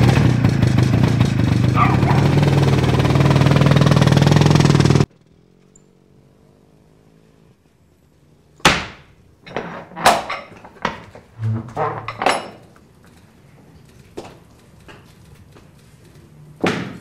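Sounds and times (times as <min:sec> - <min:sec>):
motor engine running: 0:00.0 - 0:08.5
metallic clanks and knocks: 0:08.8 - 0:12.9
heavy iron door clanging: 0:09.4 - 0:12.8.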